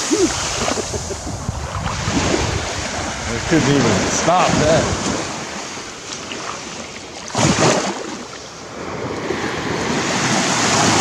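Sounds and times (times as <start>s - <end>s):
small surf washing onto sand: 0.0s - 11.0s
wind on microphone: 0.0s - 11.0s.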